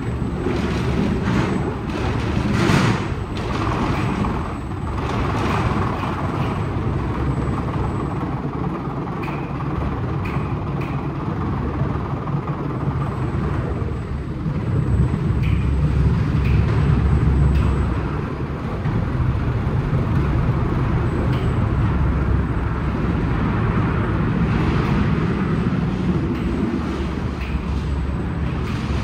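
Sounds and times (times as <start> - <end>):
car wash machine rumbling: 0.0 - 29.0.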